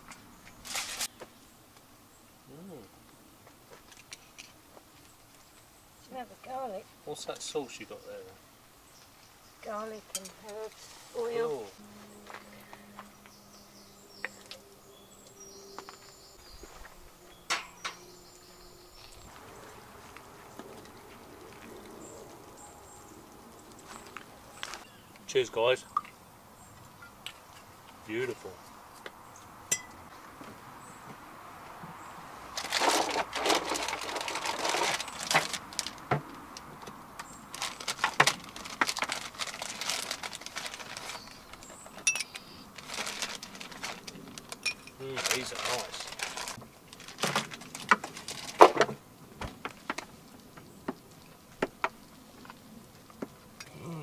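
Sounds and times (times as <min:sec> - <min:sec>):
faint outdoor background: 0:00.0 - 0:54.0
plastic bag rustling: 0:00.6 - 0:01.1, 0:32.5 - 0:36.1, 0:37.4 - 0:48.9
hands rummaging in plastic box: 0:32.6 - 0:36.0, 0:37.6 - 0:42.0, 0:42.8 - 0:48.9.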